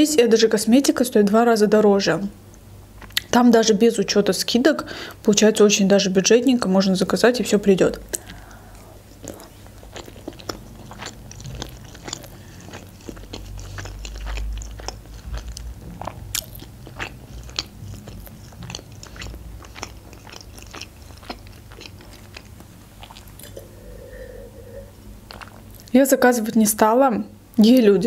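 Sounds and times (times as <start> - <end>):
close-miked chewing: 7.4 - 26.0.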